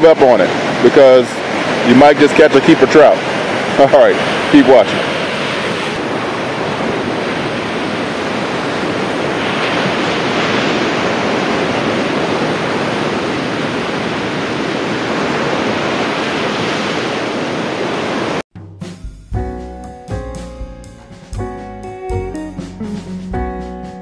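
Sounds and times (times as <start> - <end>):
ocean surf breaking on sand: 0.0 - 18.4.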